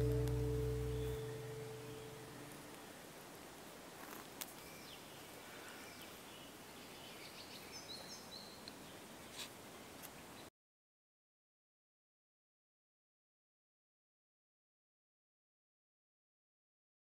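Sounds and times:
steady low hiss: 0.0 - 10.5.

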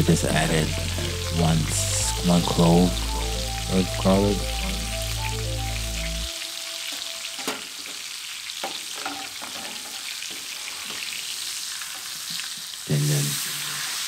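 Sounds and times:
background music: 0.0 - 7.8
steak sizzling in a skillet: 6.3 - 14.0.

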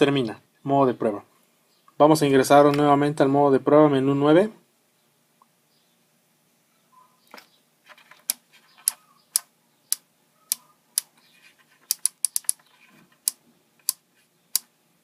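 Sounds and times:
sharp plastic clicks: 11.9 - 12.6.

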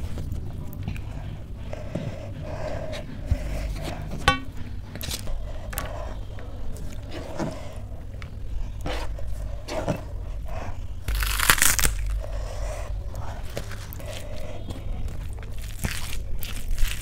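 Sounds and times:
fingers working rice on steel plate: 3.1 - 5.2.

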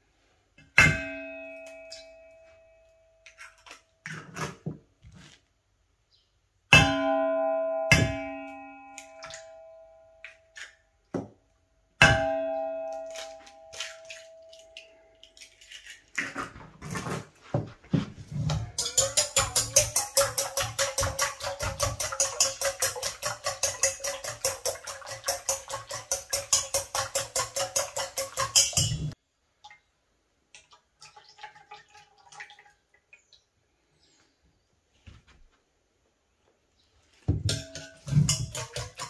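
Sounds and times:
bowl ringing: 0.9 - 2.9, 6.8 - 10.2, 12.0 - 14.8
batter beaten in steel bowl: 18.5 - 29.2, 37.4 - 39.0
eggshell tapping: 18.8 - 29.2, 37.4 - 39.0
whisk clinking against bowl: 18.8 - 29.2, 37.5 - 39.0.

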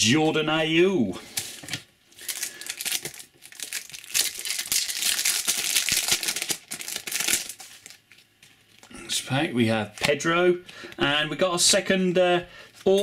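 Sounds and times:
foil wrapper crinkling: 1.7 - 8.8.

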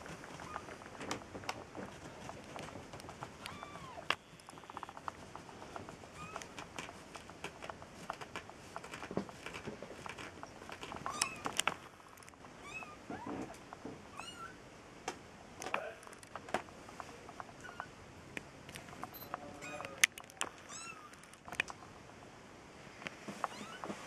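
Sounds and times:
kittens mewing: 3.4 - 5.0.

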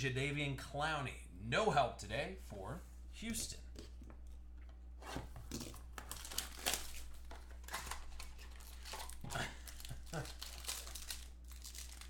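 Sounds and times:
plastic wrap crinkling and tearing: 5.5 - 12.0.

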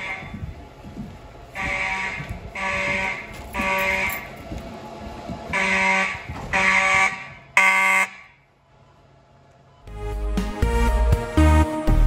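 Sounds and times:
fire alarm horn pulses: 1.6 - 4.3, 5.5 - 8.2.

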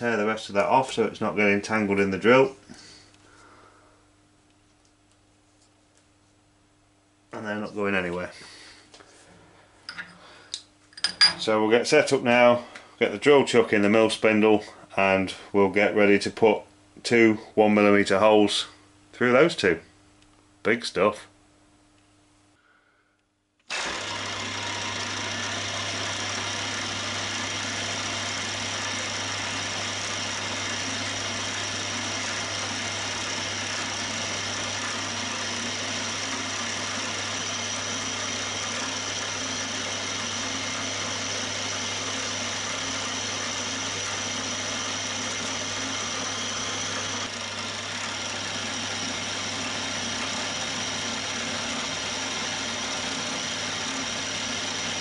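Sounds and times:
drill boring through brass: 23.7 - 55.0
milling machine motor humming: 23.7 - 55.0.

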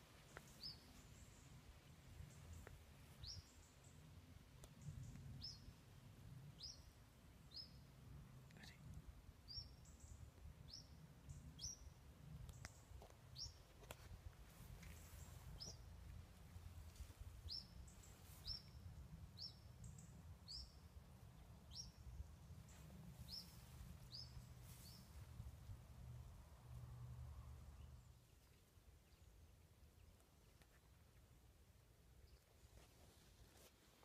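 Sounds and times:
small bird chirping: 0.2 - 1.6, 9.5 - 13.7, 14.8 - 15.9, 17.4 - 20.9, 21.6 - 25.4
low steady rumble: 14.2 - 30.0.

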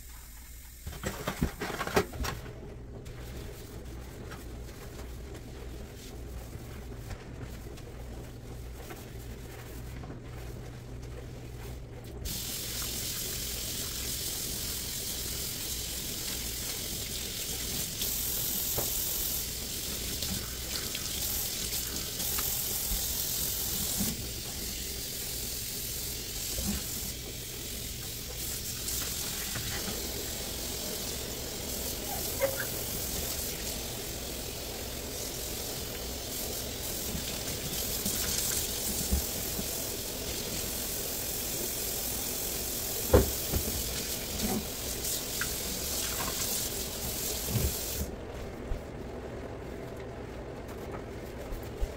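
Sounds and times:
faucet running water into steel sink: 12.3 - 48.1.

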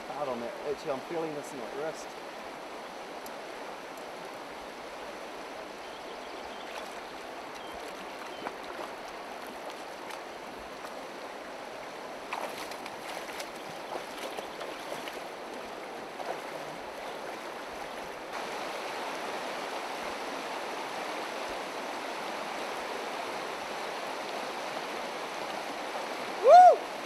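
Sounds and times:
river rushing over rocks: 0.0 - 27.0.

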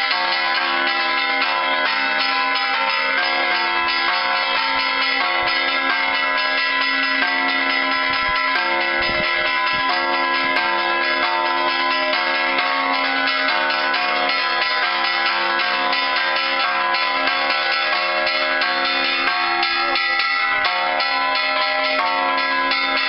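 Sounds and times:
church bells pealing: 0.0 - 23.0.

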